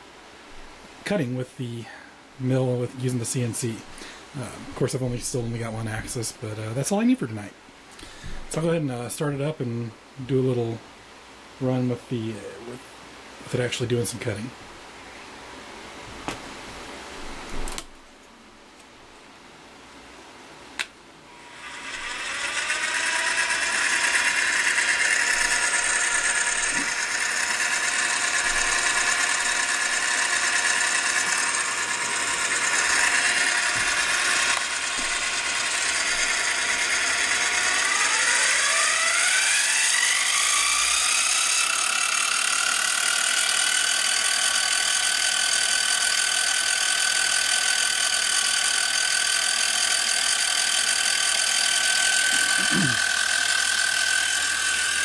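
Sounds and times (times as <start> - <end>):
milling machine motor whining: 21.3 - 55.0.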